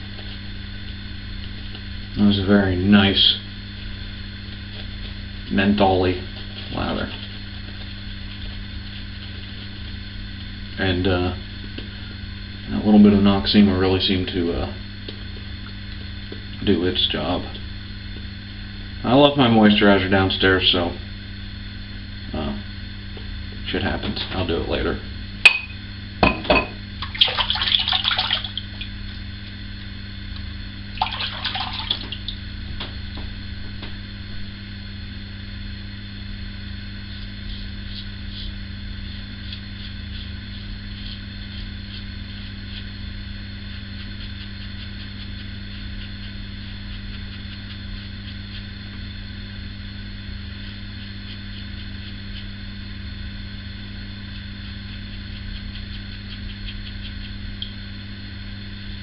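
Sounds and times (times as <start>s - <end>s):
low steady hum: 0.0s - 59.0s
water splashing: 27.0s - 28.8s, 31.0s - 32.2s
razor scraping stubble: 37.0s - 49.0s.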